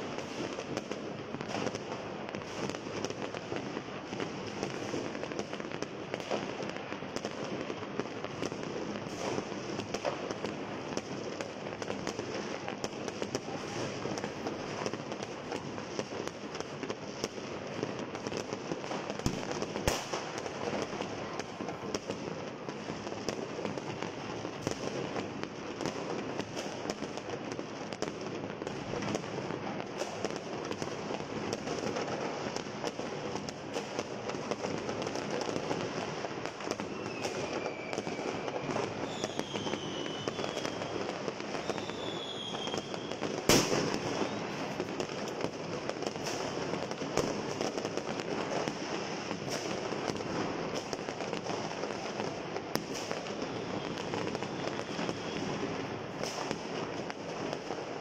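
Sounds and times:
fireworks crackling and banging: 0:00.0 - 0:58.0
whistling fireworks: 0:00.0 - 0:58.0
loud firework bang: 0:43.5 - 0:44.8.

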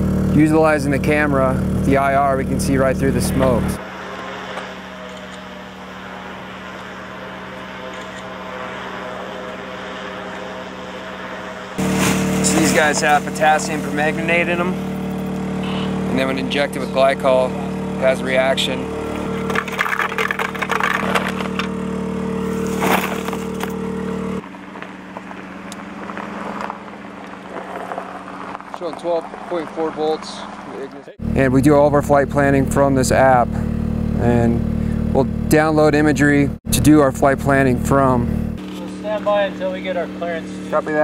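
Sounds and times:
drone propellers humming: 0:00.0 - 0:41.0.

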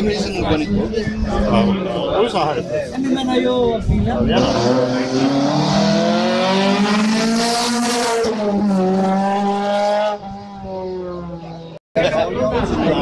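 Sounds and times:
race car accelerating past: 0:04.4 - 0:11.7.

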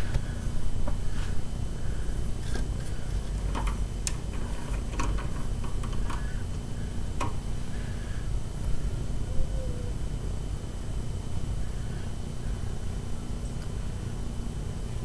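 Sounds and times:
low steady rumble: 0:00.0 - 0:15.0
window blind slats clicking: 0:03.4 - 0:06.3.

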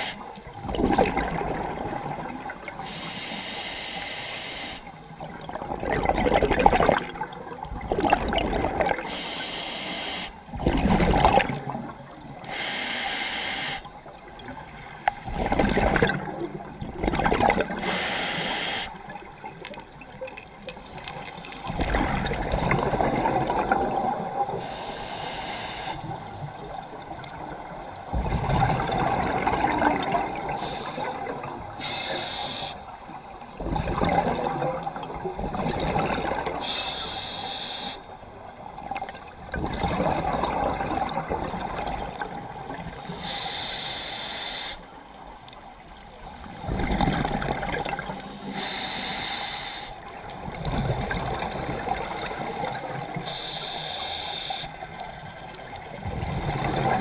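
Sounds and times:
regulator inhale hiss: 0:00.0 - 0:00.2, 0:02.8 - 0:05.0, 0:09.0 - 0:10.4, 0:12.4 - 0:14.0, 0:17.8 - 0:19.0, 0:24.5 - 0:26.4, 0:30.5 - 0:33.1, 0:36.6 - 0:38.2, 0:43.0 - 0:45.0, 0:46.2 - 0:47.0, 0:48.2 - 0:50.1, 0:51.5 - 0:55.0
exhaled bubbles gurgling: 0:00.0 - 0:43.9, 0:44.6 - 0:57.0.

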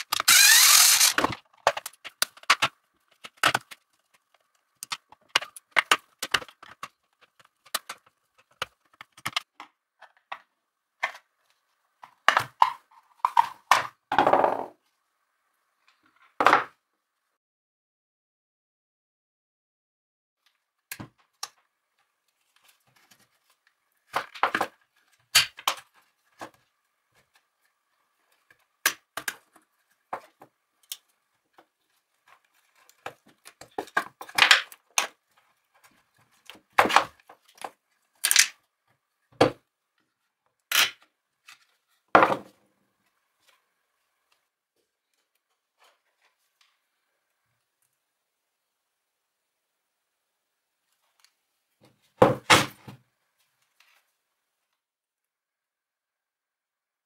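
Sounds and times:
angle grinder parts clicking and rattling: 0:00.0 - 0:02.6.

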